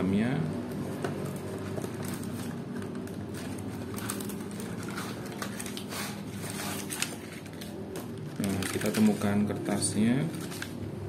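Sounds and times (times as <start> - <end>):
foil and cardboard crinkling: 1.4 - 10.8.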